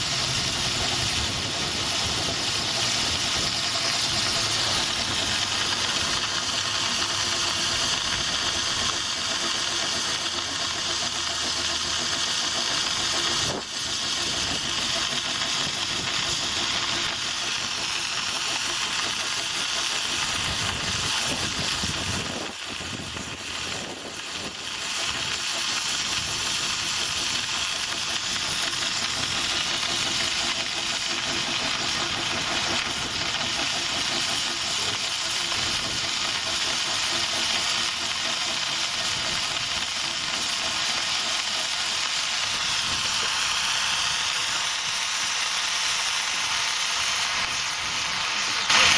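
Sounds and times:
locomotive rumble: 0:00.0 - 0:07.2
locomotive hiss: 0:00.0 - 0:48.9.

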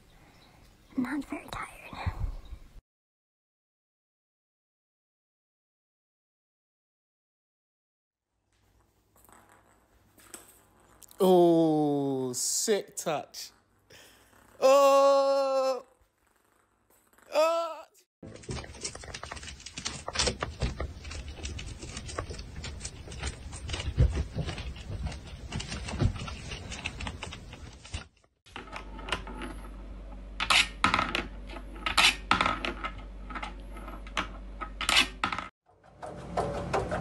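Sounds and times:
small clicks and scrapes: 0:18.4 - 0:29.8.

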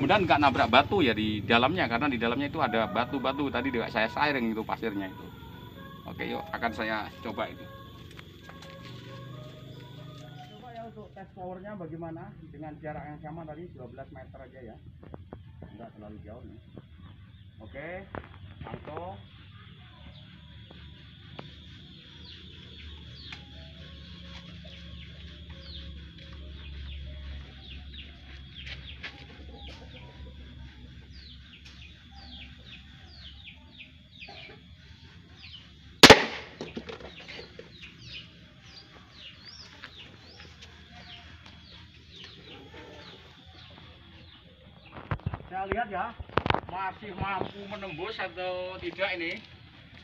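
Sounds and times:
small birds chirping: 0:00.0 - 0:50.0
spear gun shot: 0:36.0 - 0:36.8.

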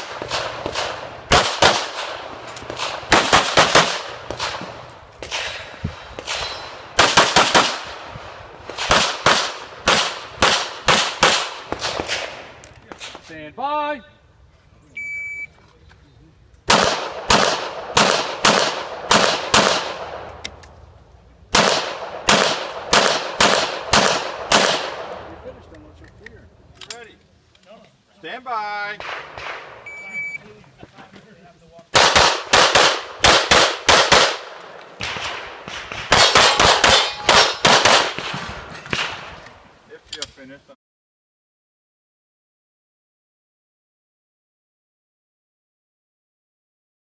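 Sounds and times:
pistol shots with echo: 0:00.0 - 0:13.2, 0:16.7 - 0:20.3, 0:21.5 - 0:25.3, 0:29.0 - 0:29.8, 0:31.9 - 0:39.4.

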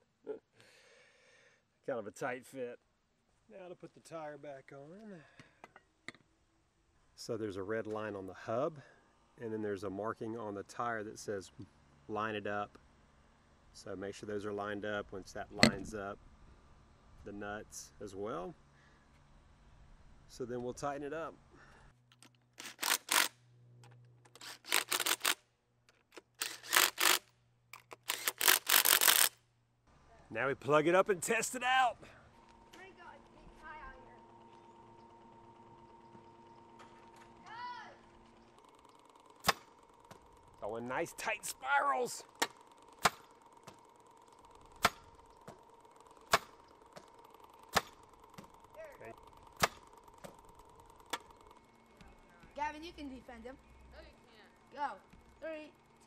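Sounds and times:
cordless drill pulsing: 0:22.6 - 0:23.4, 0:24.3 - 0:25.4, 0:26.3 - 0:29.4, 0:32.4 - 0:40.6, 0:42.2 - 0:52.3
sharp clicks: 0:42.3 - 0:51.7.

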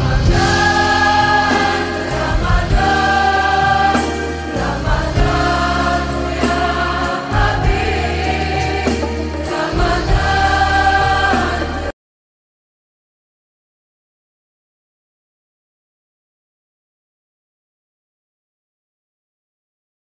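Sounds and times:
backing music with bass line: 0:00.0 - 0:11.9
layered voices singing: 0:00.0 - 0:11.9.

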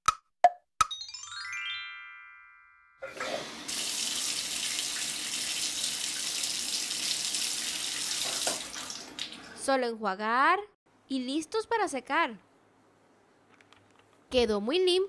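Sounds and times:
rising chime run: 0:00.9 - 0:03.0
water spraying from sink sprayer: 0:03.0 - 0:09.5.

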